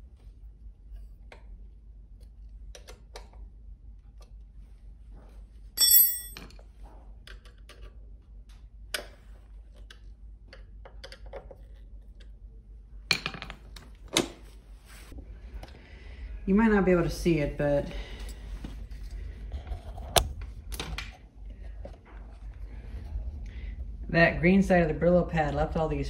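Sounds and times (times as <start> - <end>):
ringing metallic clink: 5.8 - 6.4.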